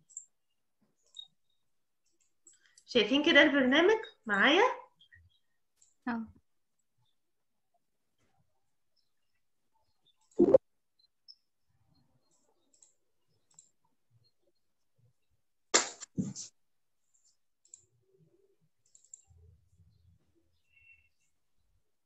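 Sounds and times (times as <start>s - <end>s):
computer mouse clicking: 12.2s - 13.8s, 17.6s - 18.0s, 18.8s - 19.4s.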